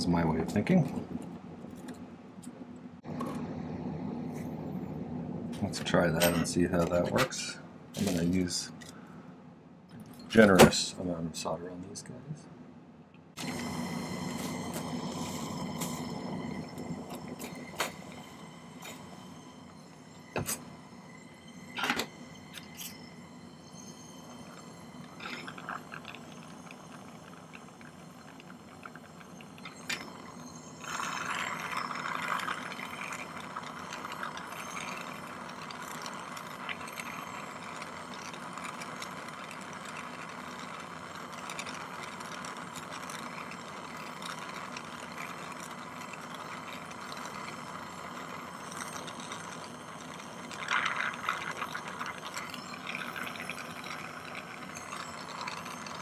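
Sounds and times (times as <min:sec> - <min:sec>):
gas torch flame hissing: 0:13.4 - 0:56.0.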